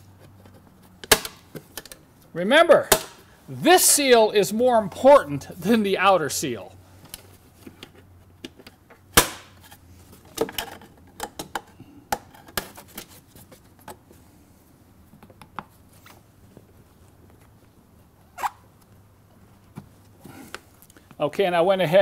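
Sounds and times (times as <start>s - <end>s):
loud snap: 9.2s - 9.5s.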